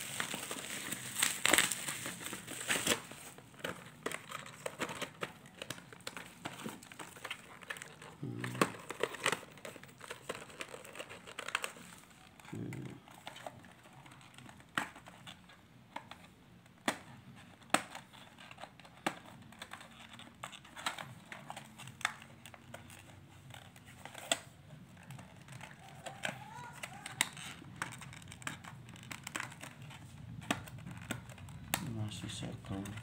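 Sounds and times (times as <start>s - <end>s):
cardboard packaging crinkling: 0.0s - 16.3s, 17.0s - 33.0s.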